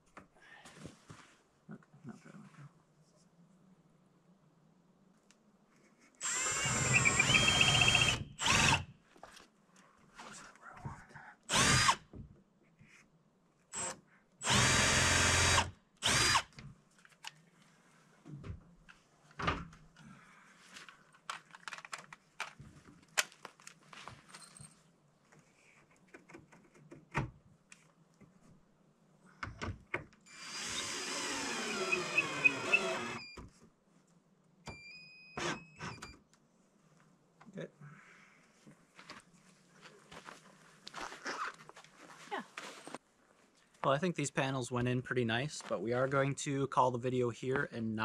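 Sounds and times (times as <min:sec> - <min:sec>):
power drill driving screws: 0:06.2 - 0:08.9, 0:11.5 - 0:12.0, 0:13.7 - 0:16.6, 0:30.3 - 0:33.4, 0:35.4 - 0:36.2.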